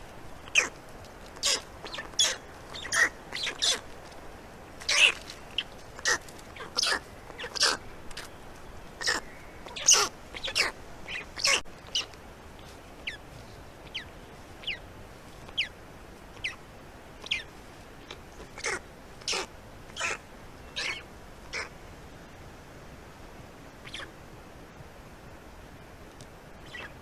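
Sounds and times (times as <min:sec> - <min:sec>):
birds calling sharply: 0:00.4 - 0:00.8, 0:01.4 - 0:03.9, 0:04.8 - 0:13.2, 0:15.4 - 0:15.8, 0:17.2 - 0:21.7, 0:23.8 - 0:24.1, 0:26.6 - 0:27.0.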